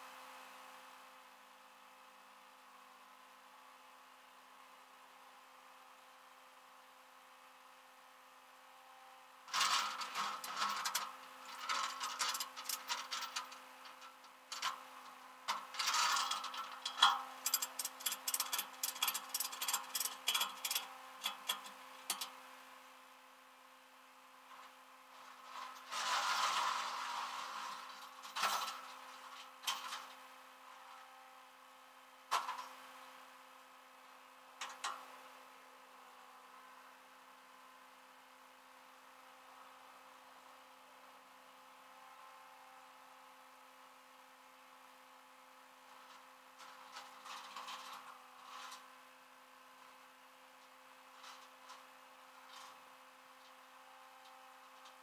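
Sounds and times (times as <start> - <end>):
faint steady hum: 0.0 - 55.0
metal tie-down gear clanking: 15.7 - 22.3.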